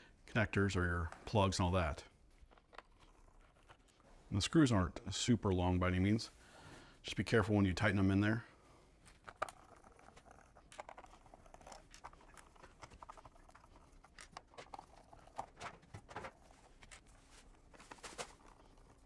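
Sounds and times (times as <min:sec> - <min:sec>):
screwdriver clicking and scratching: 0:09.2 - 0:17.1.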